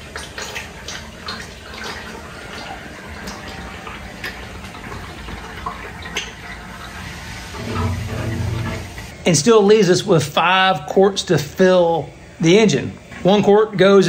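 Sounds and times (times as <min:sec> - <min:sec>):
oil pouring stream: 0:00.0 - 0:09.2.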